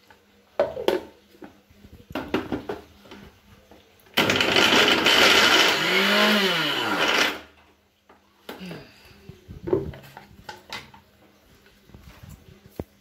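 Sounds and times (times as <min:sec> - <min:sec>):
mixer grinder running: 0:04.2 - 0:07.5.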